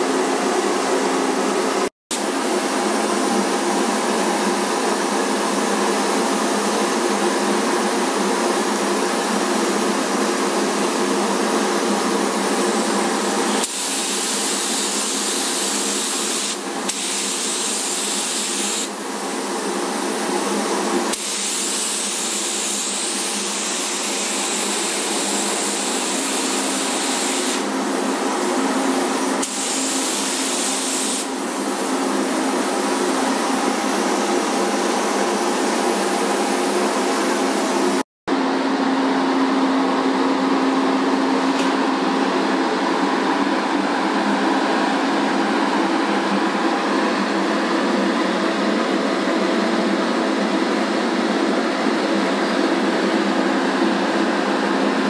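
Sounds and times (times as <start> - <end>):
spray gun hissing: 13.5 - 19.4, 21.1 - 33.0, 33.7 - 38.0.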